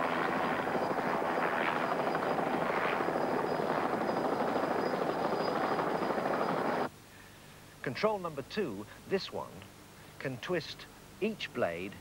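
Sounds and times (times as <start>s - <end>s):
helicopter rotor and engine: 0.0s - 6.9s.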